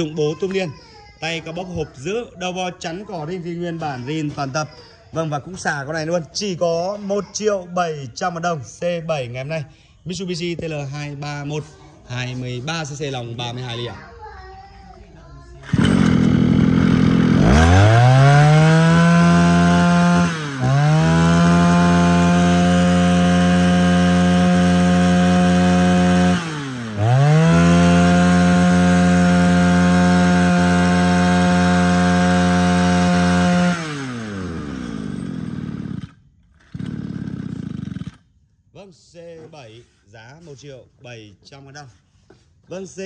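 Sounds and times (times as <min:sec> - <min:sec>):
brush cutter engine revving: 0:15.6 - 0:38.3.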